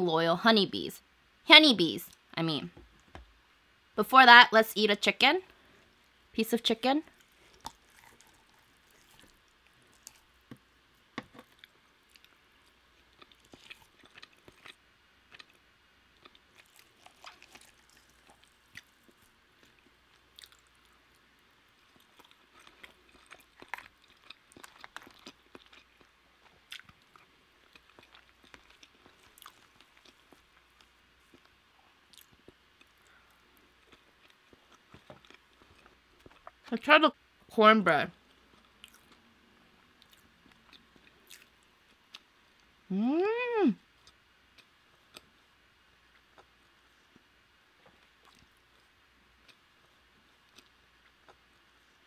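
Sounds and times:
chewing food: 0:07.0 - 0:36.7, 0:38.2 - 0:42.7, 0:46.1 - 0:52.0.

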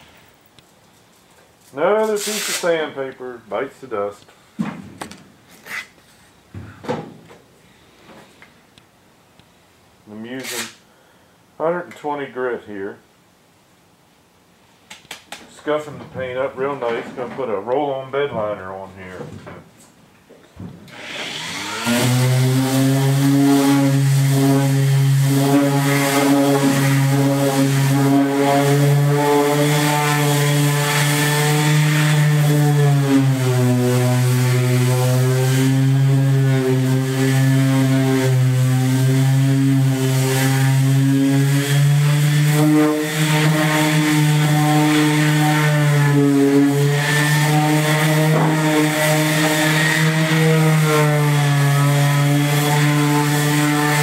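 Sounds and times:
electric sander on steel: 0:20.9 - 0:54.0.

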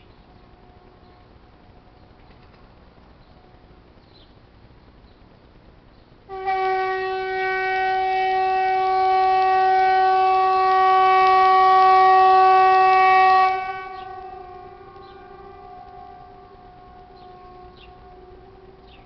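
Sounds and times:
loud trumpet-like blare: 0:06.3 - 0:19.0.

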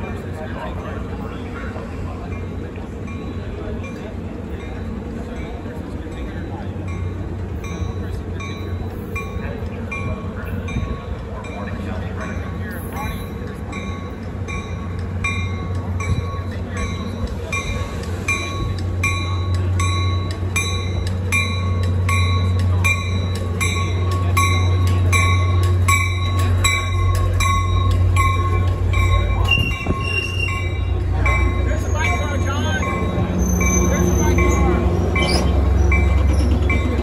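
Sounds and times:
train bell ringing: 0:00.0 - 0:37.0
train rumbling: 0:00.0 - 0:37.0
brake squeal: 0:29.4 - 0:36.9.

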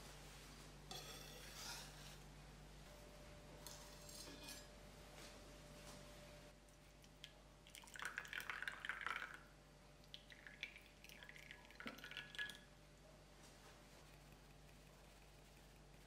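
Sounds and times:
thick sauce pouring and dripping: 0:10.0 - 0:12.7.

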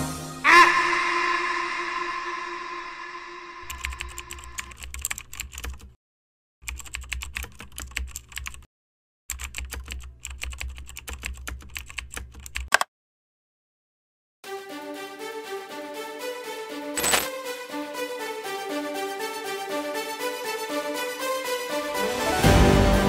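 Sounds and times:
typing on computer keyboard: 0:03.7 - 0:06.0, 0:06.6 - 0:08.7, 0:09.3 - 0:12.9.

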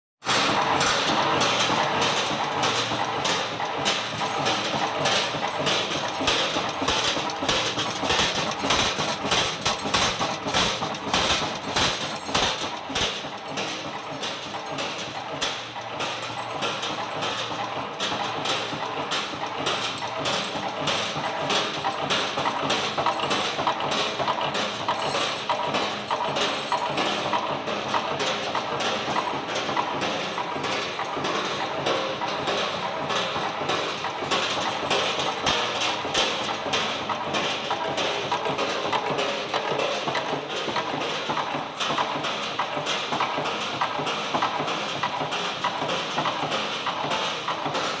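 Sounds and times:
nail making machine clattering: 0:00.2 - 0:48.0
regular machine knock: 0:00.2 - 0:48.0.

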